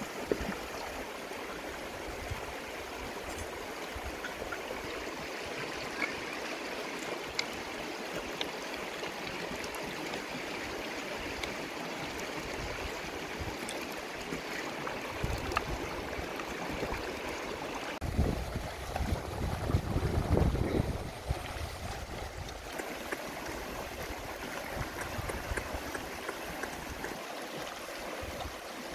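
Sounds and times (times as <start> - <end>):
river water running over stones: 0.0 - 28.9
wind rumble on microphone: 15.1 - 17.1, 18.0 - 22.7.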